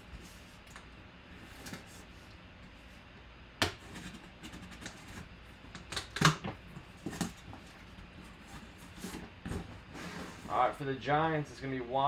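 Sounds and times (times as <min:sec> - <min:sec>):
cardboard scraping and rustling: 0:06.8 - 0:10.8.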